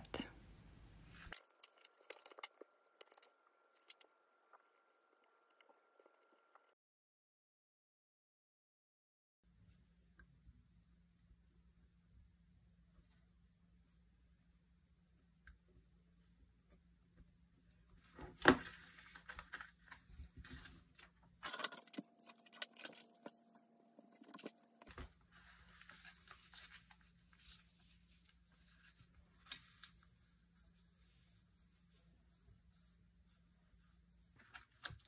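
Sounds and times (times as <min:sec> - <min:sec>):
paper rustling and crinkling: 0:18.2 - 0:30.4.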